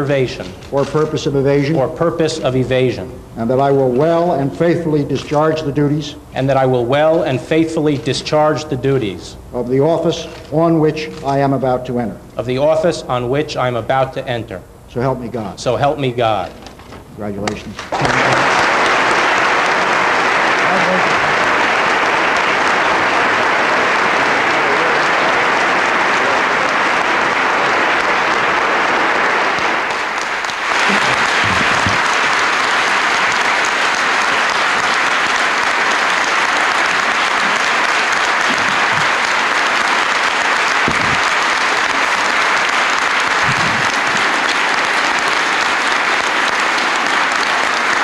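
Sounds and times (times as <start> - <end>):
audience applause: 17.8 - 48.0.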